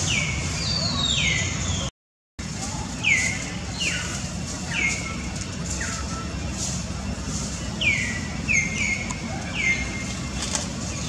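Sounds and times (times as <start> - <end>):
steady low rumble: 2.4 - 11.0.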